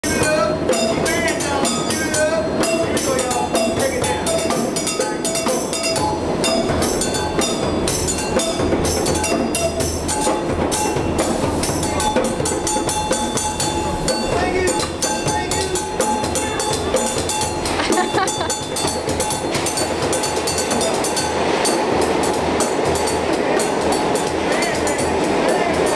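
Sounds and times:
wooden percussion instrument: 0.0s - 25.9s
sustained tones: 4.2s - 25.9s
djembe played by hand: 5.4s - 21.2s.

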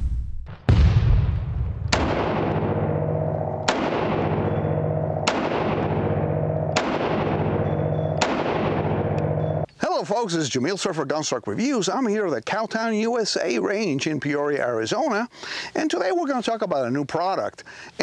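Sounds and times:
heavy gunshot-like booms: 0.0s - 9.3s
long steady ringing: 2.6s - 9.8s.

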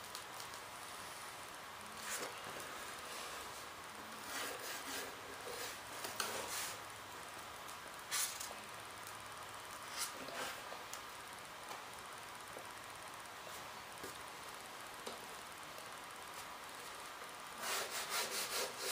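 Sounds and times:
pencil scratching on wood: 17.6s - 18.9s.

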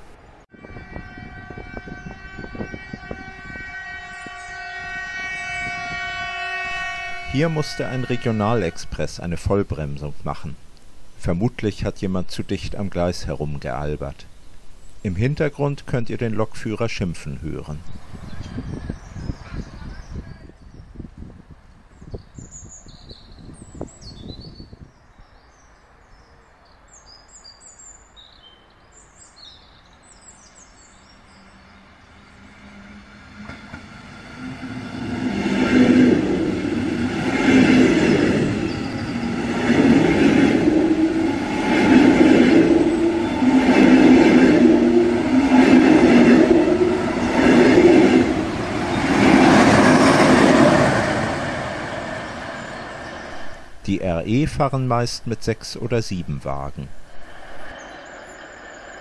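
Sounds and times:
birds chirping: 21.9s - 34.2s, 36.3s - 59.0s
train passing with wheel beat: 30.6s - 53.9s, 56.7s - 59.0s.

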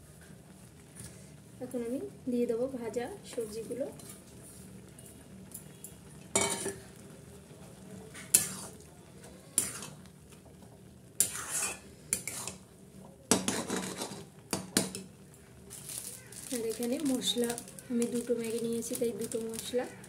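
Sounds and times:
metal spatula scraping a pan: 8.2s - 8.8s, 9.5s - 10.0s, 11.2s - 12.6s, 13.3s - 14.3s.

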